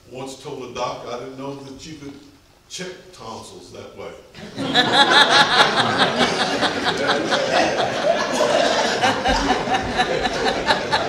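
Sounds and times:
crowd laughing: 4.4s - 11.0s.

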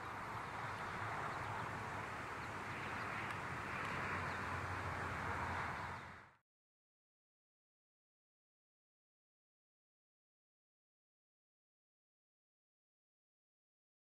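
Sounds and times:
outdoor background rush: 0.0s - 6.4s.

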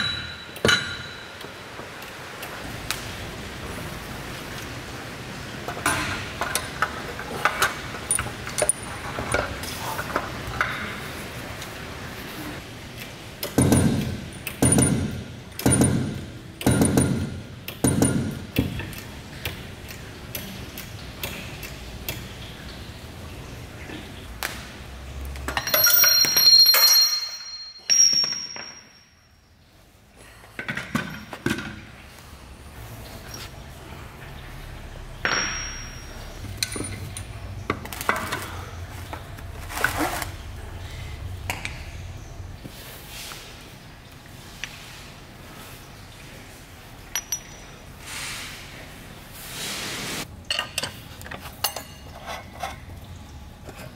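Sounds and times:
metal clicks and clinks: 7.5s - 9.4s, 25.4s - 29.1s, 35.2s - 37.4s, 47.1s - 47.8s
loud metallic ping with ringing: 25.6s - 29.3s, 35.2s - 36.4s.

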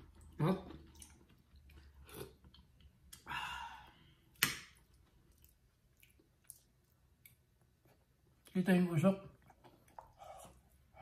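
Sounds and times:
faint chewing: 4.8s - 8.5s, 9.3s - 11.0s.

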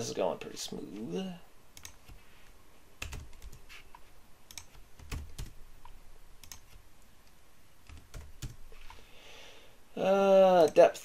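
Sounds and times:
computer keyboard keystrokes: 1.8s - 2.2s, 3.0s - 3.6s, 4.5s - 6.8s, 7.8s - 8.6s.

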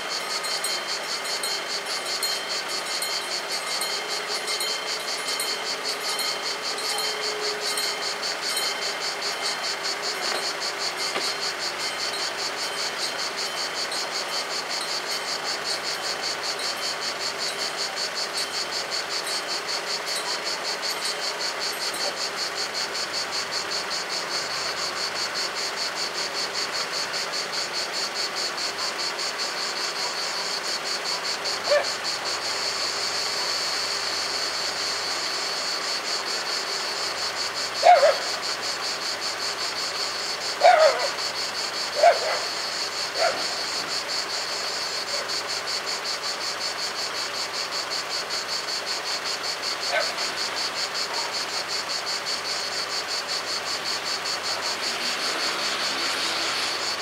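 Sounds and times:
level crossing bells ringing: 0.5s - 9.6s.

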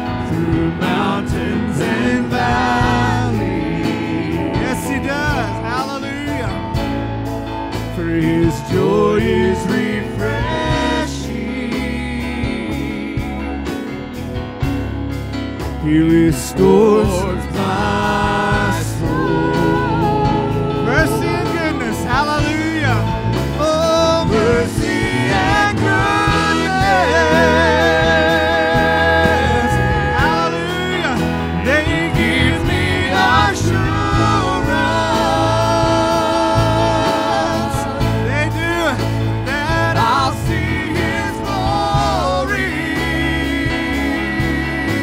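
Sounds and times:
singers holding long notes: 0.0s - 6.7s, 15.8s - 45.0s
acoustic guitar: 0.0s - 45.0s
keyboard: 0.0s - 45.0s
conga drums: 16.6s - 45.0s.

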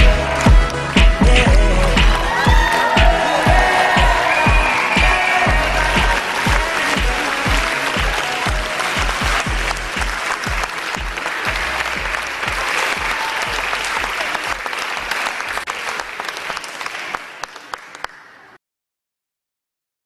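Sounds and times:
pop music with heavy beat: 0.0s - 12.6s
audience applauding: 0.0s - 18.6s.

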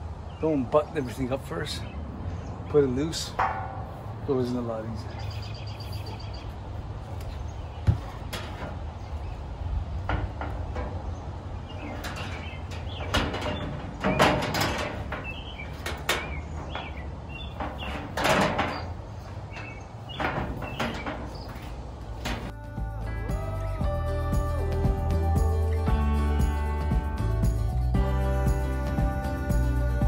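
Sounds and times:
sheet metal clanking and scraping: 3.1s - 5.2s, 7.9s - 9.4s, 10.0s - 22.6s.

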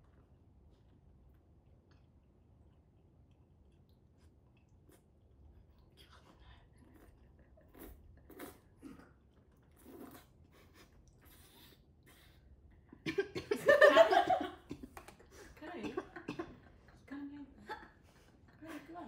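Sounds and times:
noodles slurped: 1.9s - 12.4s
person coughing loudly: 15.8s - 16.6s.

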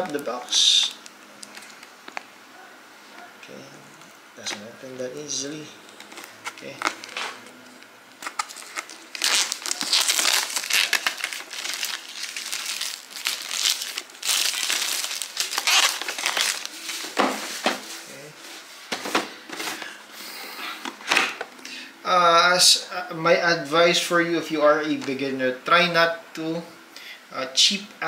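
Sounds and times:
plastic shrink wrap tearing: 5.9s - 17.6s.

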